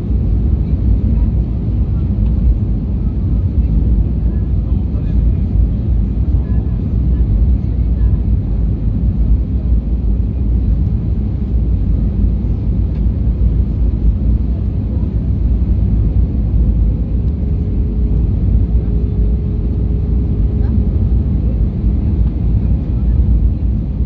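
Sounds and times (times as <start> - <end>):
airplane cabin roar: 0.0 - 24.0.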